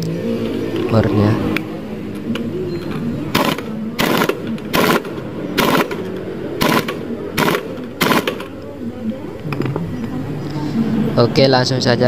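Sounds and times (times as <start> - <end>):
impact wrench rattling: 3.3 - 8.6.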